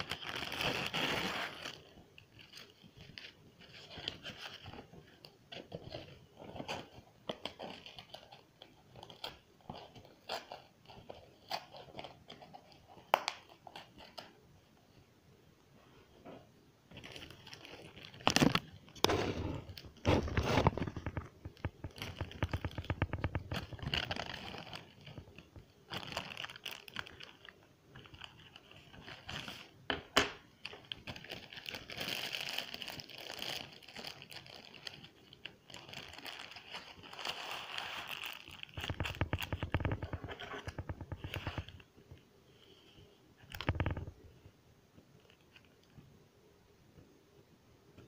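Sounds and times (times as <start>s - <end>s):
rustling and scraping: 15.8s - 26.3s, 35.8s - 44.5s.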